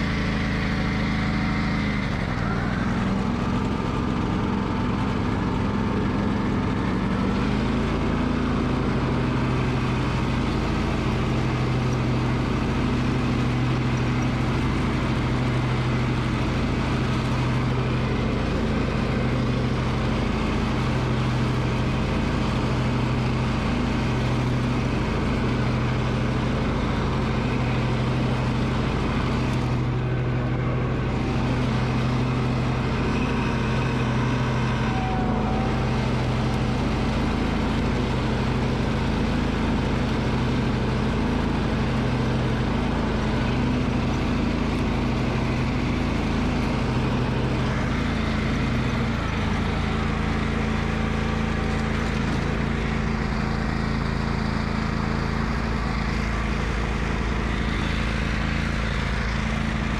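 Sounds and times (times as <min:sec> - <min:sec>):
riding mower engine running: 0:00.0 - 0:59.9.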